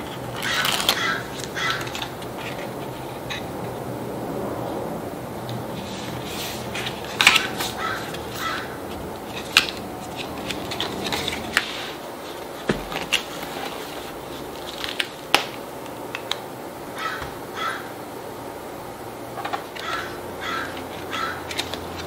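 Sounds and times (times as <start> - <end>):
paper rustling: 0.0 - 3.8, 5.7 - 15.6
steady background hiss: 0.0 - 22.0.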